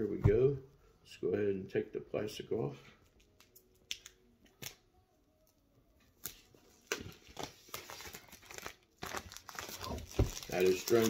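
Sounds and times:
shrink wrap crinkling: 6.2s - 11.0s.

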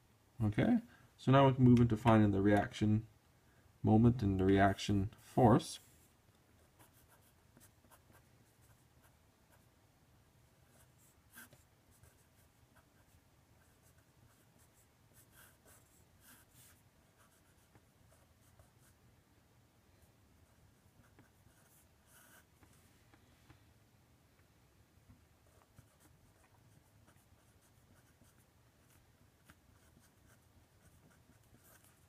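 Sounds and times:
faint low hum: 0.0s - 32.0s
marker scratching on paper: 10.7s - 19.0s, 20.8s - 22.7s, 25.4s - 32.0s.

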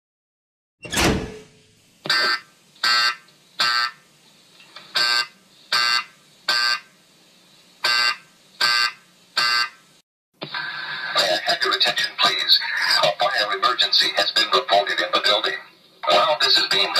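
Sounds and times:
thump: 0.9s - 1.6s
fire alarm short blasts: 2.1s - 4.0s, 5.0s - 6.9s, 7.8s - 9.8s.

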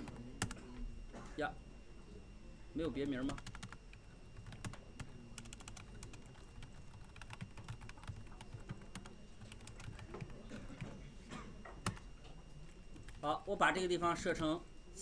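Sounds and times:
computer keyboard typing: 0.0s - 0.6s, 3.0s - 11.0s, 11.8s - 12.1s, 13.0s - 13.3s.

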